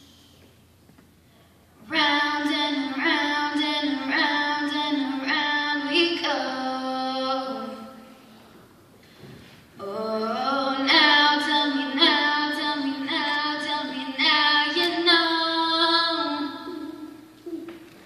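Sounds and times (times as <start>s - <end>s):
girl singing: 1.8s - 8.1s, 9.8s - 17.8s.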